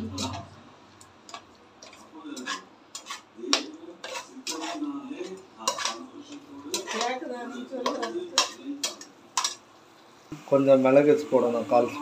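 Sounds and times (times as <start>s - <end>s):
metal spoon scraping a pot: 0.0s - 0.5s, 1.3s - 9.6s.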